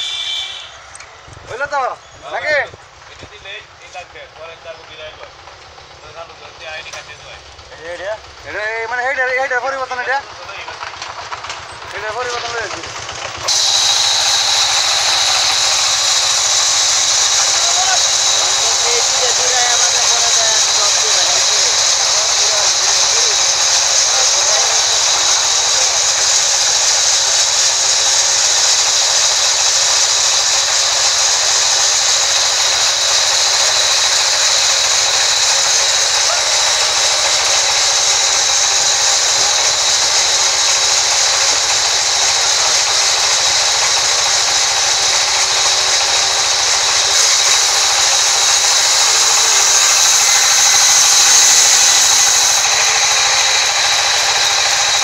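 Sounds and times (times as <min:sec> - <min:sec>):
band saw ripping through wood: 0:13.4 - 0:55.0.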